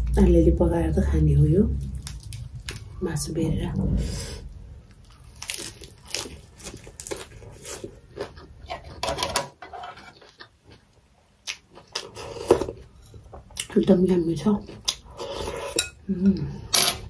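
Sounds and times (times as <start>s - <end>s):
crunching and chewing greens: 1.7s - 3.0s, 4.9s - 9.2s, 9.8s - 13.7s.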